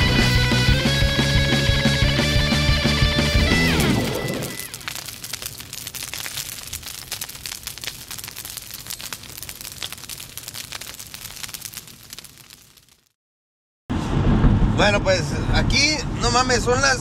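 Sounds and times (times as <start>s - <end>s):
heavy guitar music: 0.0s - 4.7s
fire crackling and popping: 3.1s - 13.2s
low rumble: 13.9s - 16.2s.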